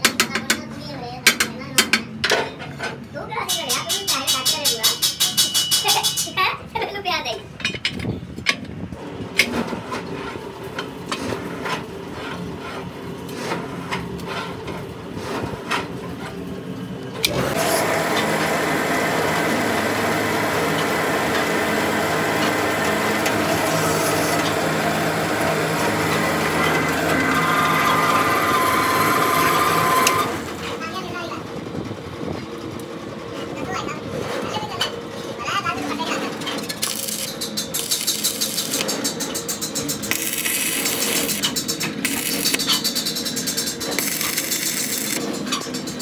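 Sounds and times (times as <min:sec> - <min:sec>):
metal clanks and knocks: 0:07.6 - 0:08.8, 0:36.0 - 0:46.0
press mechanical noise and hum: 0:07.6 - 0:46.0.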